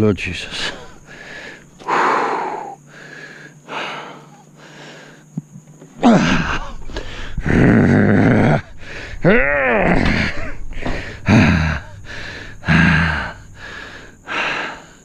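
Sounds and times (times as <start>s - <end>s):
man breathing hard: 0.7s - 5.3s, 6.0s - 7.6s, 8.4s - 9.3s, 10.0s - 15.0s
man groaning with effort: 6.0s - 14.8s.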